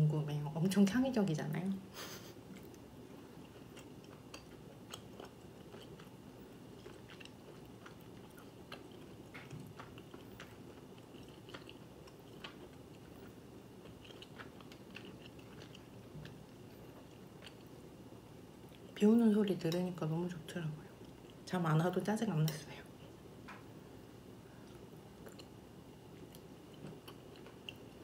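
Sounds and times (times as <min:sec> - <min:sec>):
room hum: 0:00.0 - 0:28.0
faint chewing: 0:02.1 - 0:17.8, 0:24.5 - 0:28.0.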